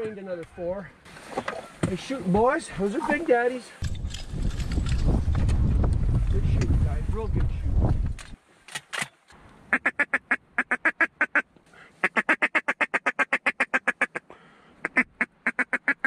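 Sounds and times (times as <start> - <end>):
duck quacking: 9.7 - 11.4, 12.0 - 14.2, 14.8 - 16.0.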